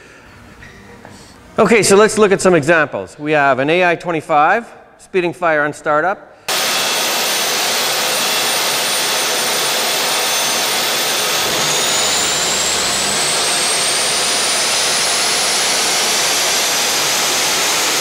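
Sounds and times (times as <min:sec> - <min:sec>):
high whine climbing in pitch: 0:06.5 - 0:18.0
jet engine rushing: 0:06.5 - 0:18.0.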